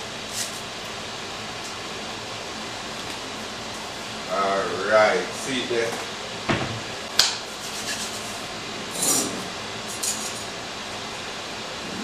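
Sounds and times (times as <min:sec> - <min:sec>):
utensils and dishes clinking: 0:08.9 - 0:10.5.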